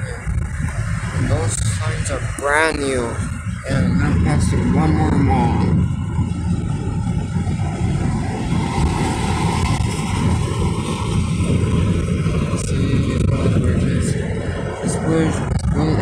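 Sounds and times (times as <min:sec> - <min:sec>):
car road noise rumble: 0:00.0 - 0:16.0.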